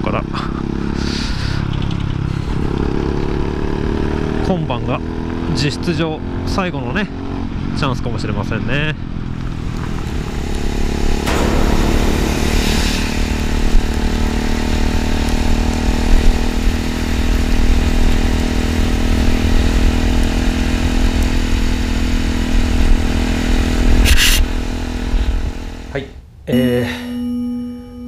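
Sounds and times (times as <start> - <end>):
brief rush of noise: 11.3 - 15.2.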